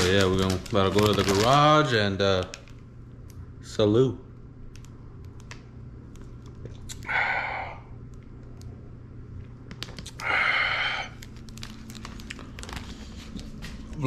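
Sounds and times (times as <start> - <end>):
steady low hum: 0.0 - 14.0
breathy exhales: 7.0 - 8.0, 10.2 - 11.2.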